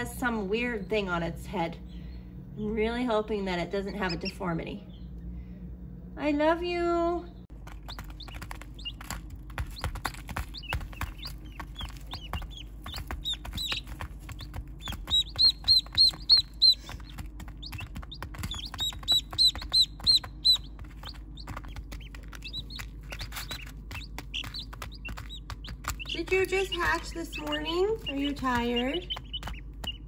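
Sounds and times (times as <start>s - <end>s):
low steady hum: 0.0s - 30.0s
chicks and ducklings peeping: 3.8s - 5.1s, 7.6s - 30.0s.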